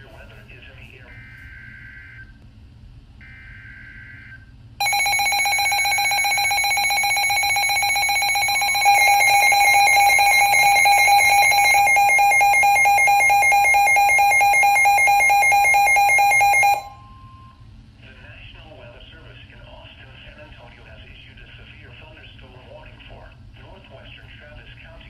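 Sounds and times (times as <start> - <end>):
shrill electronic alarm tone: 1.1 - 2.3, 3.2 - 17.6.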